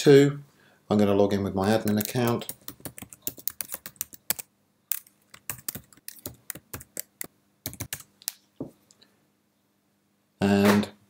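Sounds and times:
computer keyboard typing: 0:01.8 - 0:08.4.

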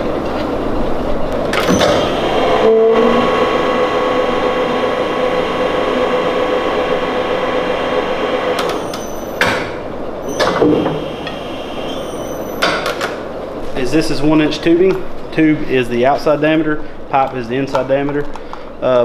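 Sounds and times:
tube bender motor hum: 0:00.9 - 0:13.0
sharp clicks and knocks: 0:08.6 - 0:09.8, 0:12.6 - 0:13.2.

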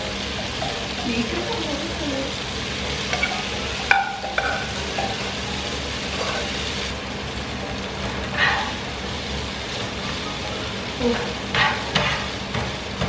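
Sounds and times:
spaghetti sizzling in a pan: 0:00.0 - 0:13.0
metal cookware clinks: 0:03.1 - 0:05.2.

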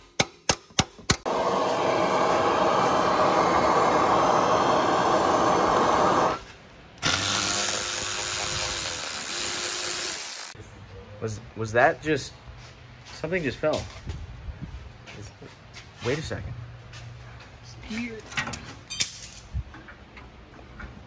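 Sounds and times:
power tool running: 0:01.3 - 0:06.4, 0:07.0 - 0:10.6.

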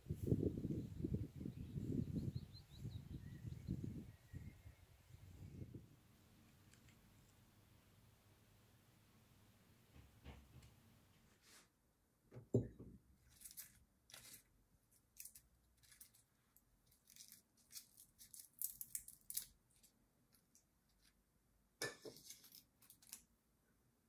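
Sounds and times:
soft thump: 0:12.3 - 0:13.0
dry plant heads rustling: 0:13.2 - 0:21.2, 0:22.1 - 0:23.3.

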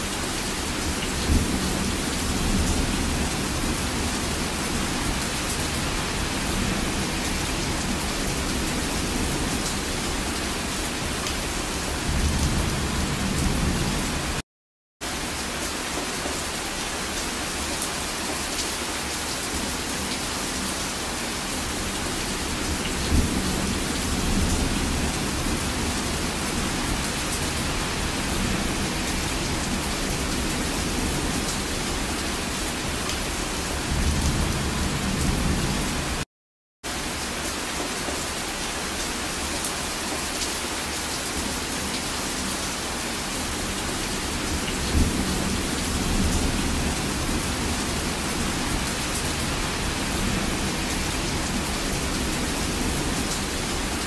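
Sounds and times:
dense rainfall hiss: 0:00.0 - 0:14.4, 0:15.1 - 0:36.2, 0:36.9 - 0:54.0
low rumbles of thunder: 0:23.0 - 0:31.4.

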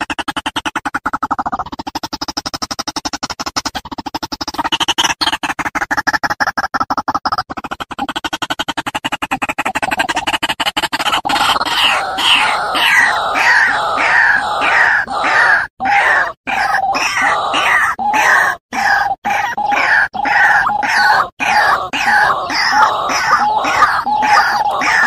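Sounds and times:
waterhens croaking: 0:11.0 - 0:25.0.

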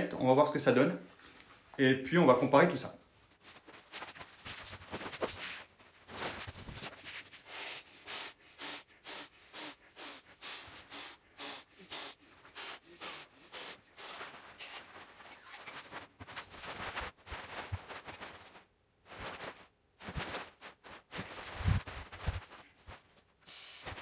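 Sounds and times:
thin fabric rustling: 0:03.2 - 0:07.5, 0:13.5 - 0:24.0
short breaths into valve: 0:07.4 - 0:14.9, 0:23.5 - 0:24.0.

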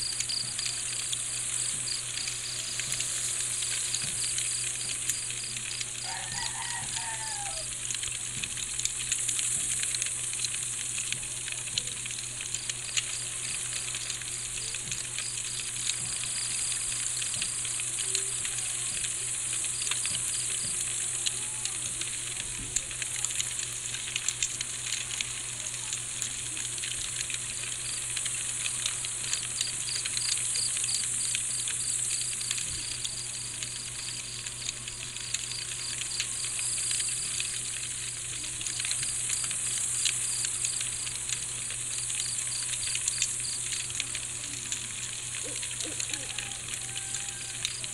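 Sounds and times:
crickets chirping: 0:00.0 - 0:07.7, 0:12.5 - 0:21.7, 0:27.1 - 0:44.3, 0:45.3 - 0:47.9
campfire crackling and popping: 0:00.0 - 0:47.9.

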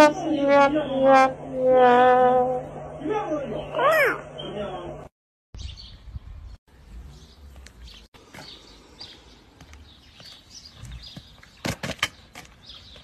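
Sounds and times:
small birds chirping: 0:03.4 - 0:04.8, 0:05.6 - 0:13.0.

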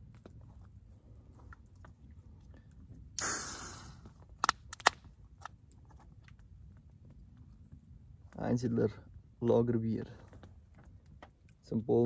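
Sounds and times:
can opening hiss: 0:03.2 - 0:04.9.

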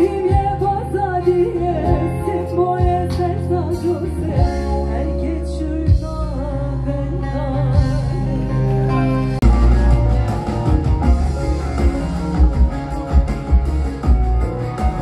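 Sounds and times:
woman singing with vibrato: 0:00.0 - 0:09.0
bass notes: 0:00.0 - 0:15.0
guitar: 0:00.0 - 0:15.0.

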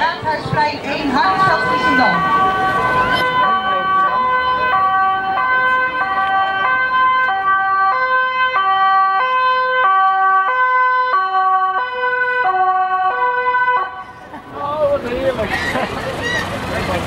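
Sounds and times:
two-tone emergency siren: 0:01.2 - 0:14.2.

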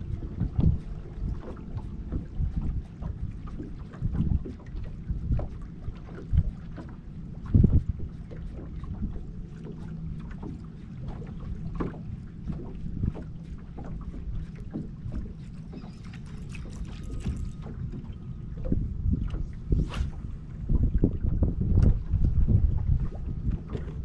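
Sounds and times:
steady low rumble: 0:00.0 - 0:24.0
wind buffeting microphone: 0:00.0 - 0:24.0.

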